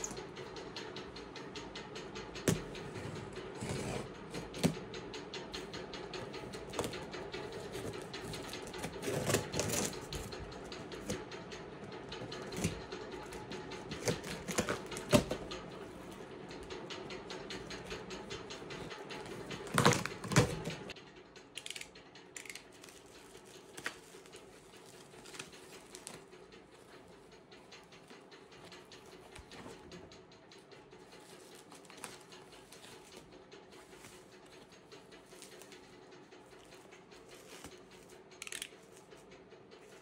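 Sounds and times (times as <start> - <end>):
rustling bubble wrap: 22.8 - 26.2.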